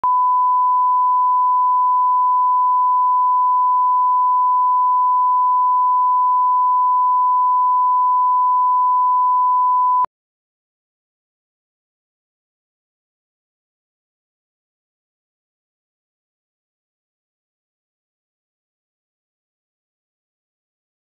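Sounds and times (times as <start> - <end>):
steady test tone beep: 0.0 - 10.1.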